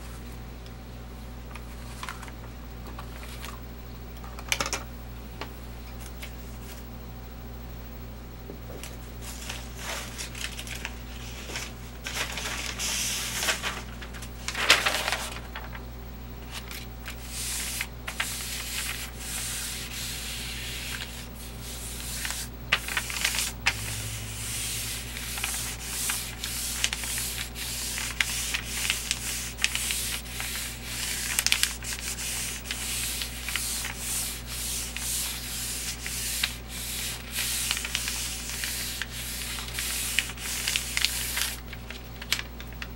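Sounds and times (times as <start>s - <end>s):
paper rustling: 8.8s - 15.8s, 16.4s - 42.9s
hand rubbing paper: 9.2s - 15.8s, 16.4s - 42.4s.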